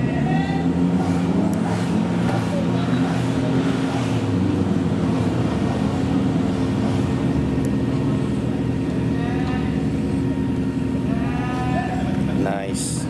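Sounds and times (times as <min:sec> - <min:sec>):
car engine droning: 0:00.0 - 0:13.0
faint voices: 0:08.7 - 0:13.0.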